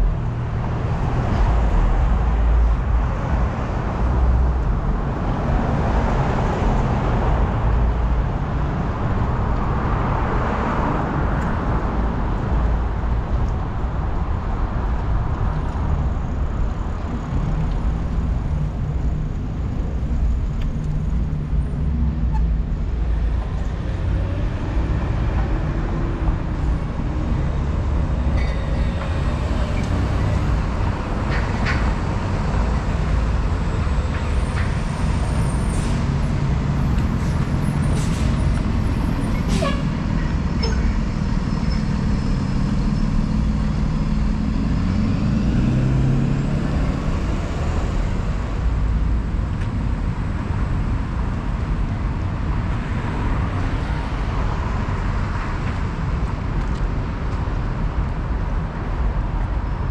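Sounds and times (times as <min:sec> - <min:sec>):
engine and tyre rumble: 0:00.0 - 0:59.9
vehicles passing and turning: 0:00.0 - 0:59.9
clicks and squeaks: 0:39.3 - 0:41.9.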